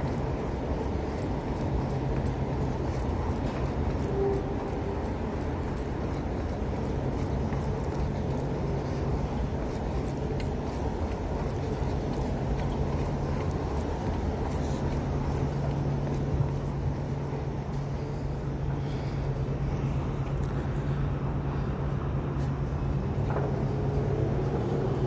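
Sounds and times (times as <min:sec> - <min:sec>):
footsteps on concrete steps: 0:00.0 - 0:17.9
city traffic rumble: 0:00.0 - 0:25.0.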